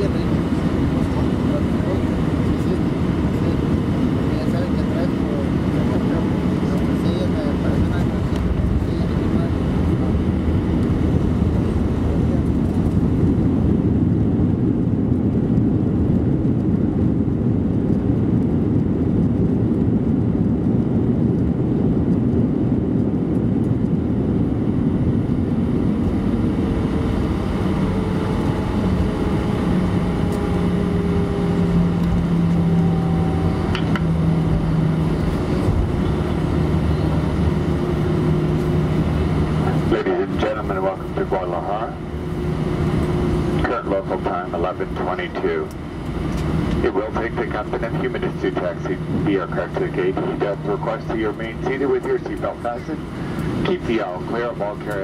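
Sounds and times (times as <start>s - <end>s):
aircraft wheels and engines rumbling: 0.0s - 55.0s
engine tones: 25.8s - 55.0s.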